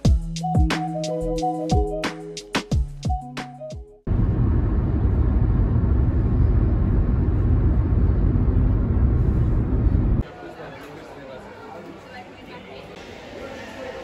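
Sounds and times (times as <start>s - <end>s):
background music: 0.0s - 4.1s
road and engine rumble in car: 4.1s - 10.2s.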